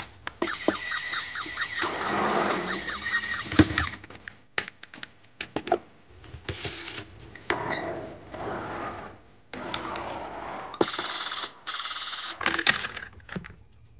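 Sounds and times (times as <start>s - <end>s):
toy cars rolling on tabletop: 6.6s - 13.1s
small clicks and knocks of toys: 12.4s - 13.6s.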